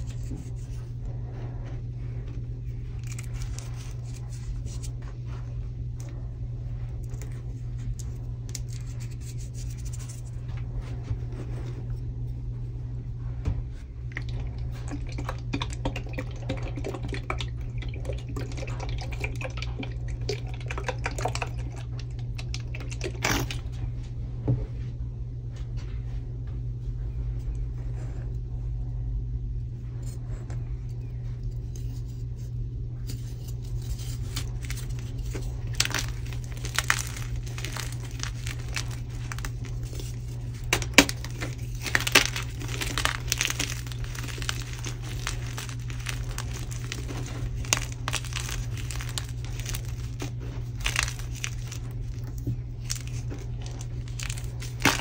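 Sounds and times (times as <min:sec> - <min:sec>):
chalk crackling and rustling: 0:00.0 - 0:12.0, 0:31.4 - 0:55.0
steady low hum: 0:00.0 - 0:55.0.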